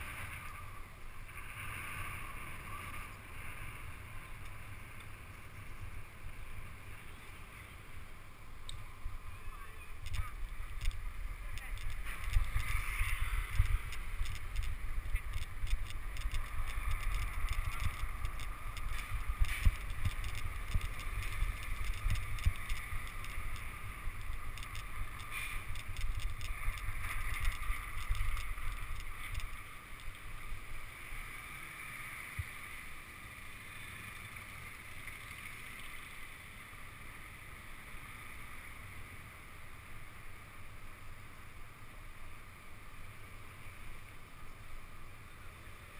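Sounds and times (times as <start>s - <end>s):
wind on microphone: 9.0s - 30.7s
bicycle rattling over cobblestones: 9.0s - 39.2s.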